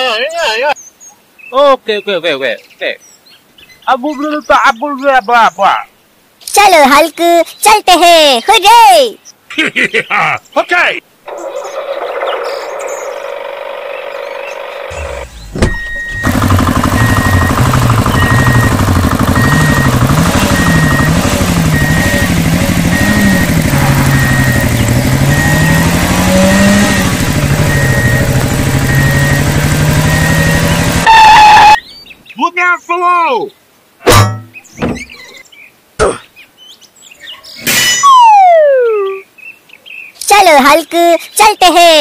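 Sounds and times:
tractor engine revving: 0:11.3 - 0:31.2.

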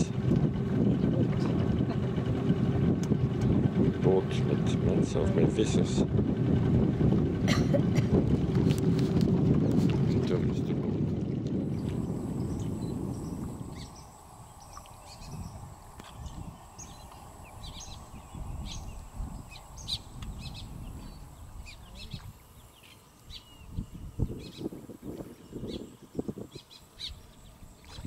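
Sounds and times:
low boat rumble: 0:00.0 - 0:28.0
bird chirps and calls: 0:12.4 - 0:24.7, 0:25.4 - 0:28.0.

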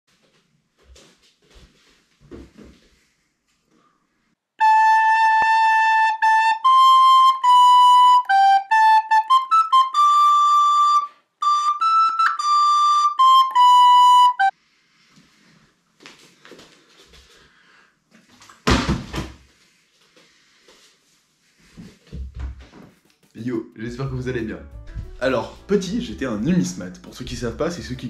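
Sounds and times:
recorder playing tune: 0:04.6 - 0:14.5, 0:24.0 - 0:28.0
faint rustling and handling: 0:14.6 - 0:18.6, 0:19.4 - 0:23.4.

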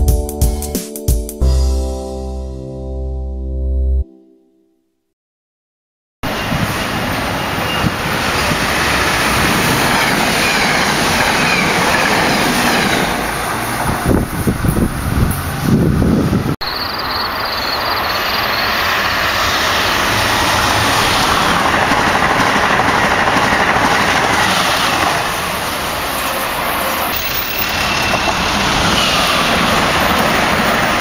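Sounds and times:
train passing at speed: 0:06.2 - 0:31.0.

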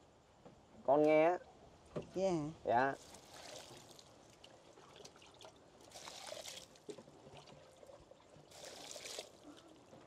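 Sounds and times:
water pouring into bucket: 0:03.0 - 0:09.7.

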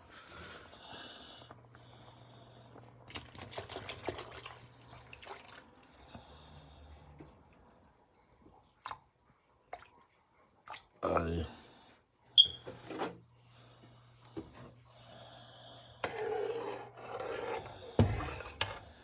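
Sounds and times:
milk pouring and splashing: 0:03.0 - 0:06.3.

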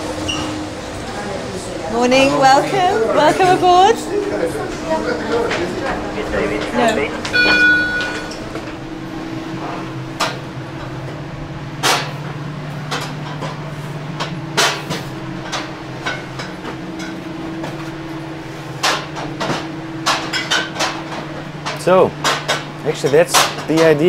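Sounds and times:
steady hum: 0:00.0 - 0:24.0
glass bottles clinking: 0:07.3 - 0:08.4.

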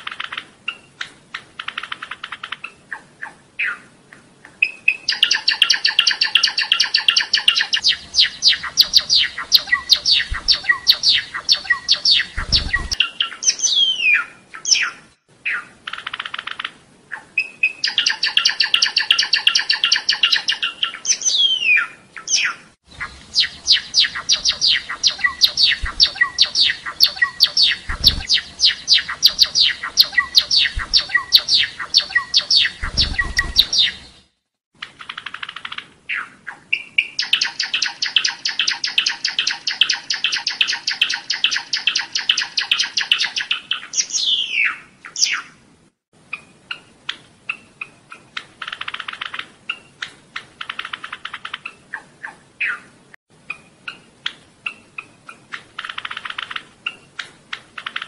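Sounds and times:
sparrow singing: 0:04.6 - 0:34.3, 0:35.0 - 0:45.6.

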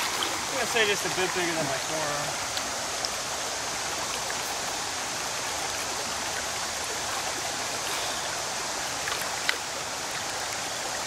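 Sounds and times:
river water rushing: 0:00.0 - 0:11.0.

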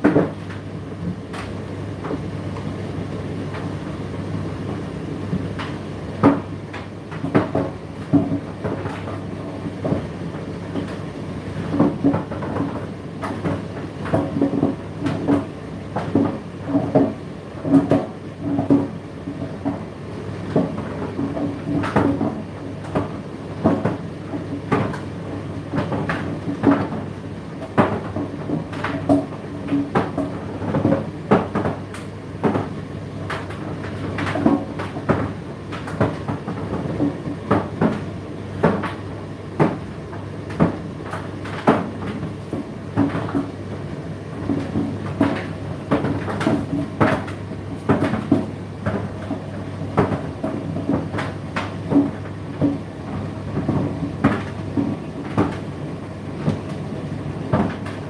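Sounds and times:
tumble dryer motor hum: 0:00.0 - 0:58.0
load knocking in dryer drum: 0:11.7 - 0:19.9, 0:25.7 - 0:39.0, 0:44.4 - 0:55.7, 0:56.4 - 0:58.0.

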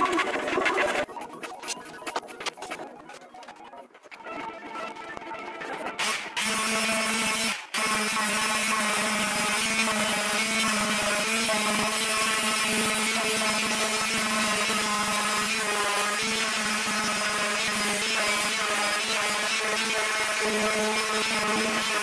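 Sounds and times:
orbital sander humming on wood: 0:06.0 - 0:22.0.

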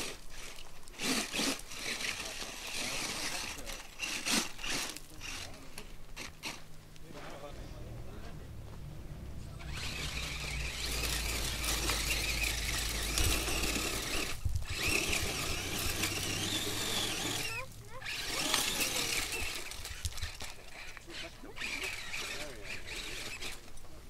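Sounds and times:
buggy engine revving high: 0:06.2 - 0:20.5.

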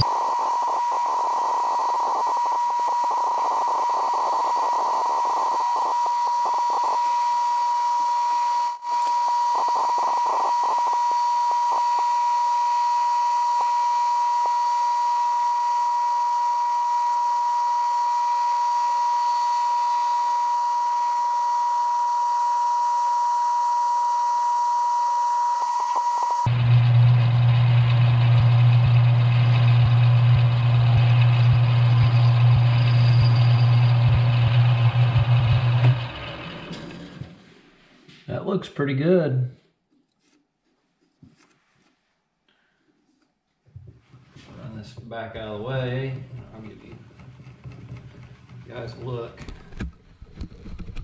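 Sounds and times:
crackle of lathe cut: 0:00.0 - 0:37.4
metal lathe whining: 0:00.0 - 0:37.4.

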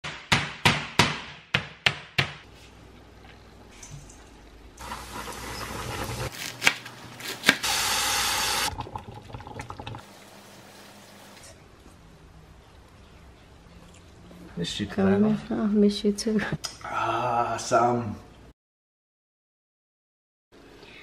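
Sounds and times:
meat mallet pounding: 0:00.0 - 0:02.4
cream hissing in hot pan: 0:07.6 - 0:08.7.

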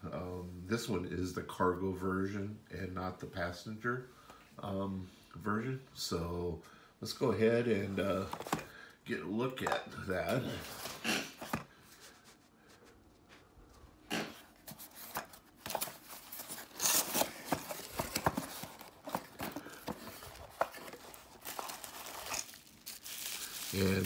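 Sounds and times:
cardboard box clicking and scraping: 0:14.6 - 0:22.4.

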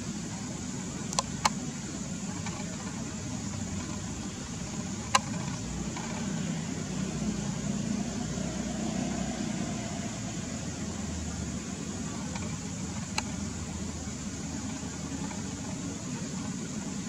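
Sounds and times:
sharp clicks: 0:00.9 - 0:06.5, 0:12.0 - 0:16.6.

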